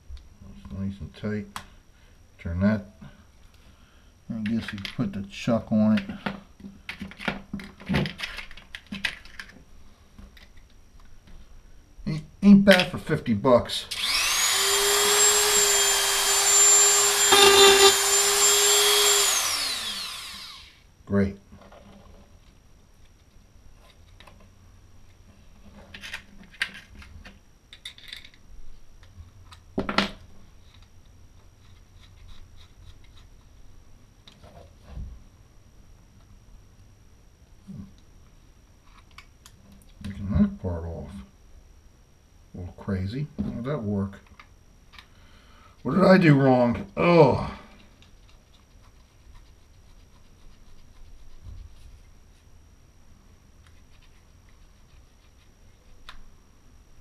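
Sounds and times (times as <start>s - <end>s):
faint low hum: 0.0s - 57.0s.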